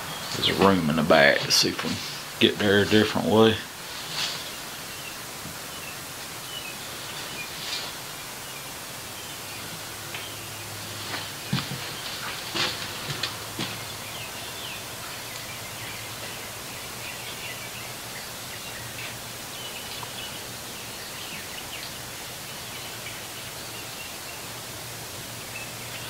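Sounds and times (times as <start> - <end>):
faint bird chirps: 13.6 - 24.6.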